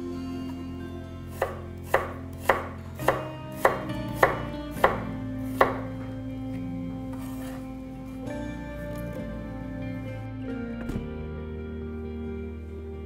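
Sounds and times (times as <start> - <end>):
knife chopping on wooden board: 1.4 - 5.9.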